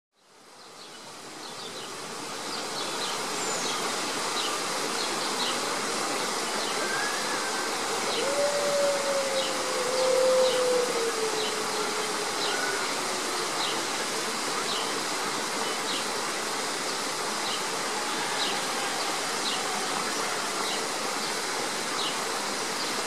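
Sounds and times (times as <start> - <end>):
steady background hiss: 0.2 - 23.0
wolf howling: 6.8 - 13.6.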